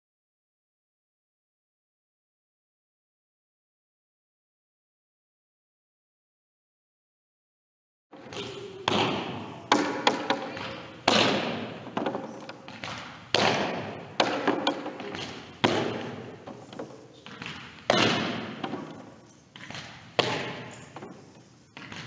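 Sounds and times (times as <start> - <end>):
balls bouncing on gym floor: 8.2 - 22.0.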